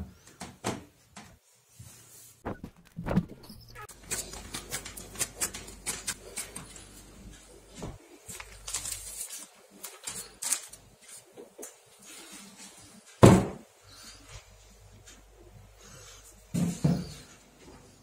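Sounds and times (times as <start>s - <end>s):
hands rustling cling film: 3.9s - 7.1s, 8.3s - 11.8s.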